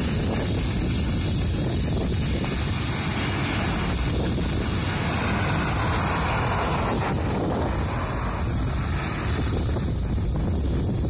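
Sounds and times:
helicopter turbine whine: 0.0s - 11.0s
wind buffeting microphone: 0.0s - 11.0s.

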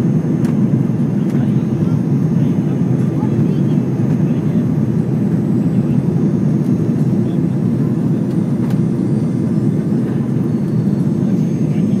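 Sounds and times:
jet airliner cabin noise: 0.0s - 12.0s.

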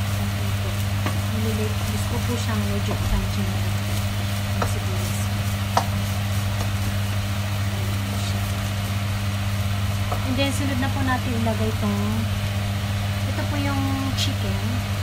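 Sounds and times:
food sizzling in a frying pan: 0.0s - 15.0s
steady low hum: 0.0s - 15.0s
spatula tapping a pan: 1.0s - 1.3s, 4.5s - 7.0s.

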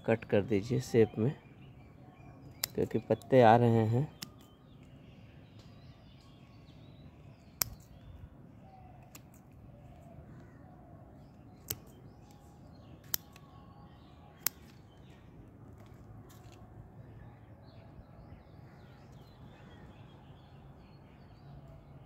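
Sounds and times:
pruning shears snipping twigs: 2.5s - 3.3s, 4.1s - 4.5s, 7.5s - 8.0s, 9.0s - 9.5s, 11.6s - 12.4s, 13.0s - 13.5s, 14.4s - 14.9s.

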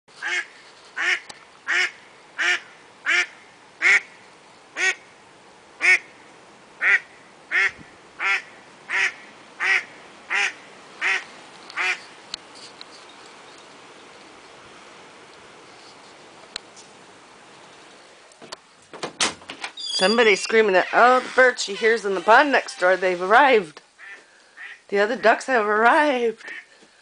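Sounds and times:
duck quacking: 0.2s - 4.1s, 6.8s - 11.2s, 24.0s - 25.4s.

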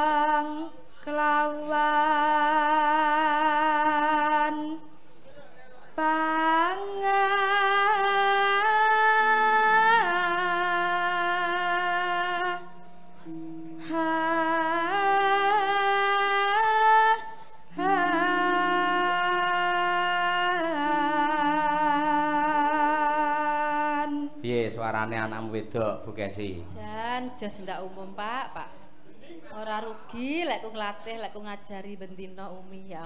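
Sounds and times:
woman singing with vibrato: 0.0s - 4.9s, 6.0s - 24.4s, 26.7s - 28.7s
low accompanying tone: 6.7s - 27.2s.

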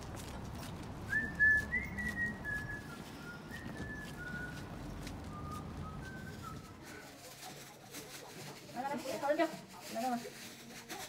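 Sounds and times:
low background rumble: 0.0s - 6.8s
person whistling a slow tune: 1.1s - 6.8s.

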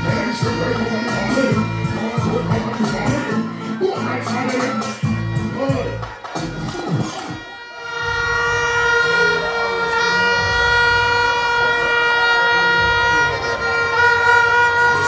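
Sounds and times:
plastic horn held tone: 6.4s - 15.0s.

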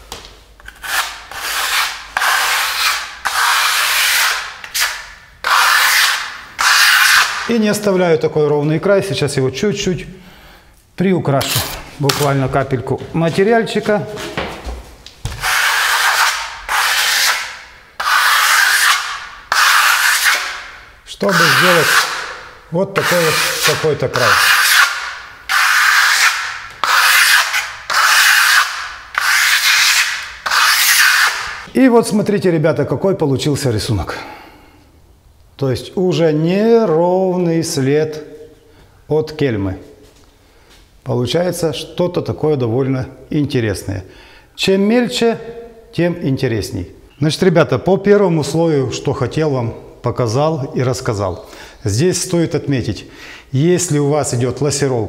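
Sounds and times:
trowel scraping wet plaster: 0.7s - 7.5s, 15.3s - 22.4s, 23.0s - 31.6s.

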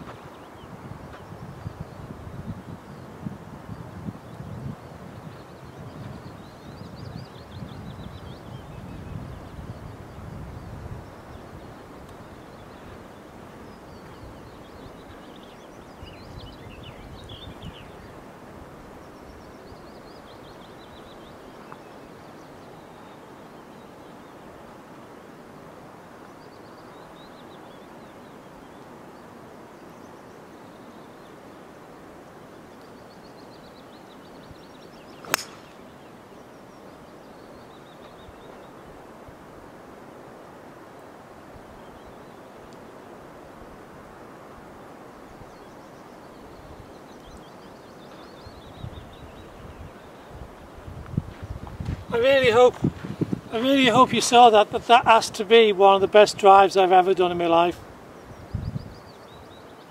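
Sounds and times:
quiet outdoor background: 0.0s - 59.9s
golf driver hitting ball: 35.2s - 35.8s.

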